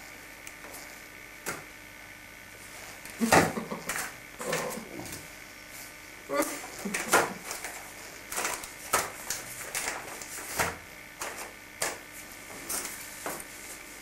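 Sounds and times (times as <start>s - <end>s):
wrapping paper crinkling: 6.8s - 10.6s.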